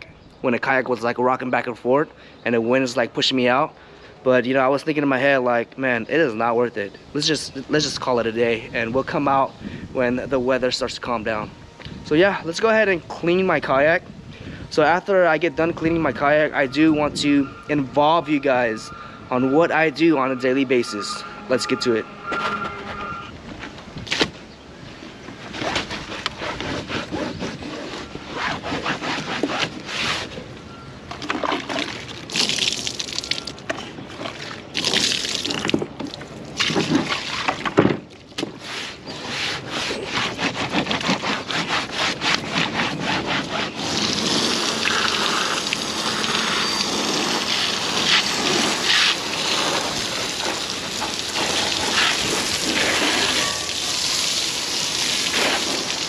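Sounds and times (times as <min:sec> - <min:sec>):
towel scrubbing plastic: 0:25.4 - 0:30.4, 0:38.6 - 0:56.0
hose spraying water: 0:43.8 - 0:56.0.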